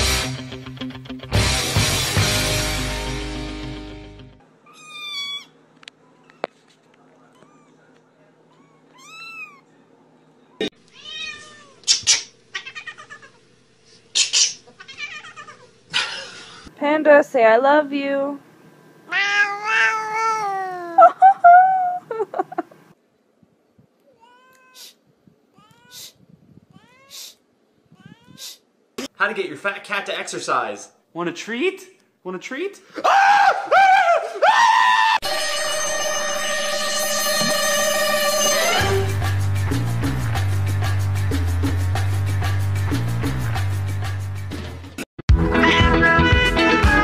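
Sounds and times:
loud rock music: 0:00.0 - 0:04.4, 0:45.3 - 0:47.0
kitten meowing: 0:04.7 - 0:05.5, 0:07.3 - 0:07.8, 0:08.5 - 0:09.6, 0:10.9 - 0:13.3, 0:14.8 - 0:15.6, 0:19.1 - 0:21.0
faint rising cat calls: 0:19.1 - 0:21.0.

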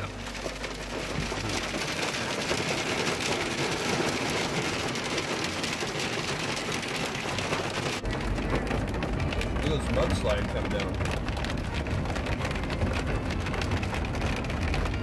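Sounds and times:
hail and rain on car roof: 0:00.0 - 0:15.0.

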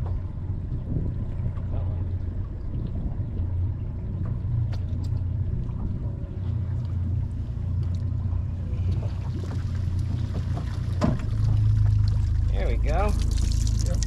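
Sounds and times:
boat motor humming: 0:00.0 - 0:14.0
water streaming off net: 0:09.1 - 0:14.0.

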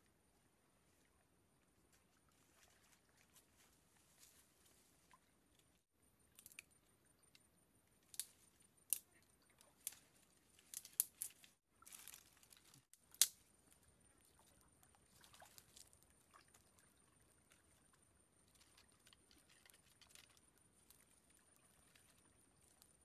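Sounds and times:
twigs snapping and rustling: 0:06.3 - 0:06.7, 0:08.0 - 0:13.4, 0:18.5 - 0:21.0.

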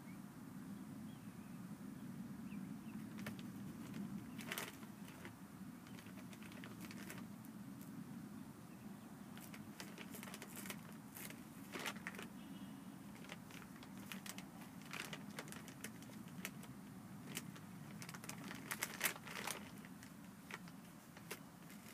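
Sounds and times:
puppy chewing plastic bag: 0:03.0 - 0:07.4, 0:09.4 - 0:12.3, 0:13.1 - 0:21.9.

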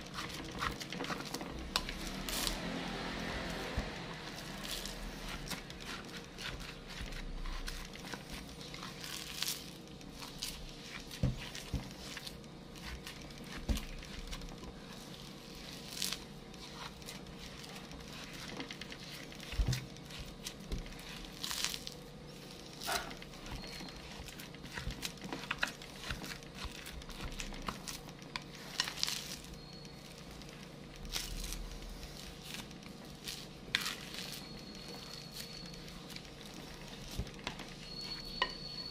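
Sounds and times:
spoon scraping glass bowl: 0:33.7 - 0:38.9.

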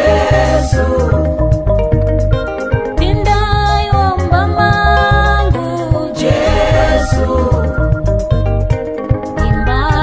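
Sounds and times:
steady bass beat: 0:00.0 - 0:05.7, 0:06.3 - 0:08.8, 0:09.4 - 0:10.0
sustained melody notes: 0:06.3 - 0:10.0.

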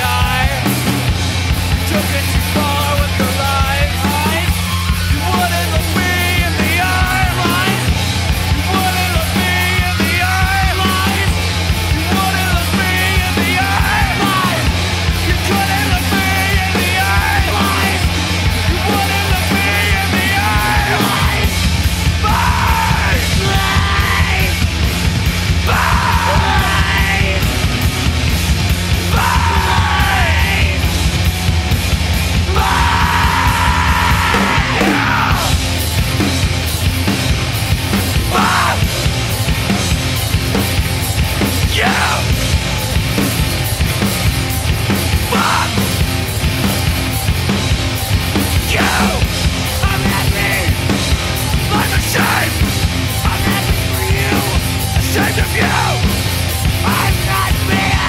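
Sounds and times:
distorted guitars and bass: 0:00.0 - 0:58.0
drums: 0:00.0 - 0:58.0
person yelling vocals: 0:22.2 - 0:24.6, 0:25.6 - 0:27.5, 0:29.1 - 0:30.8, 0:32.4 - 0:35.6, 0:48.6 - 0:50.9.

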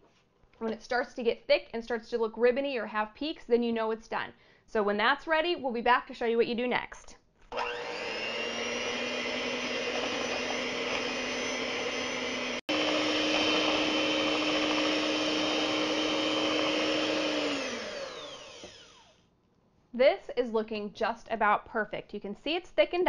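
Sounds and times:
electric hand mixer whirring: 0:07.5 - 0:19.2.

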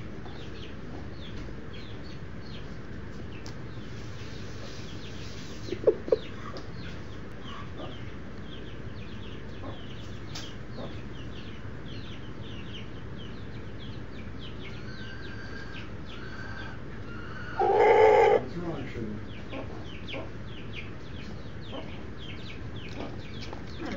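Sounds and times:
baby chicks peeping: 0:00.0 - 0:23.9
chicken clucking: 0:03.9 - 0:12.2, 0:13.5 - 0:18.6, 0:19.3 - 0:23.9.

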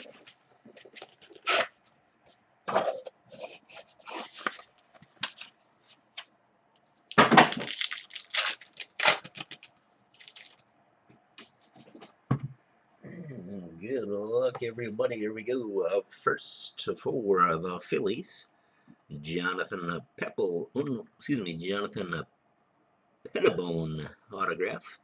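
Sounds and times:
cardboard tearing: 0:01.0 - 0:01.8, 0:07.2 - 0:10.6.

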